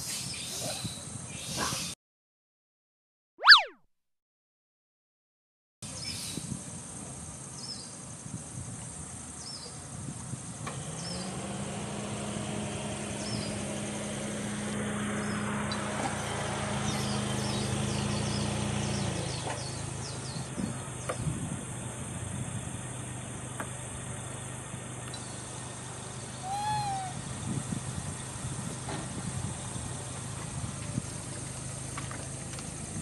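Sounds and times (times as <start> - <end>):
short high chirps: 3.4 - 3.8
vehicle engine passing: 10.7 - 21.0.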